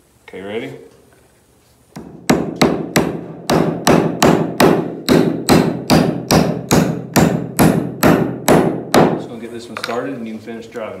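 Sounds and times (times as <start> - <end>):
hammer striking a nail into wood: 2.0 - 9.2.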